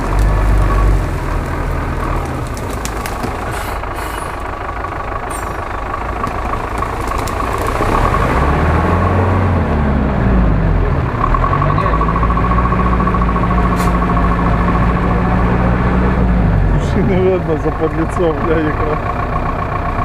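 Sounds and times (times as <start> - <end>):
reeds brushing against truck: 0.0 - 4.5
crackles: 0.0 - 8.5
off-road truck engine running: 0.0 - 20.0.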